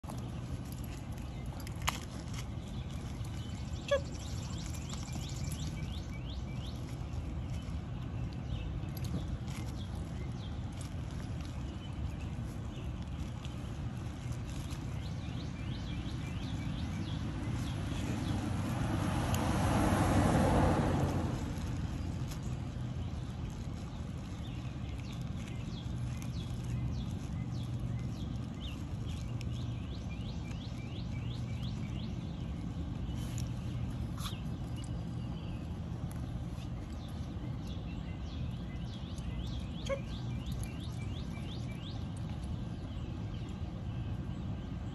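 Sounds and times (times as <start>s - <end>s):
small birds chirping: 0.0s - 44.9s
car passing: 17.4s - 22.4s.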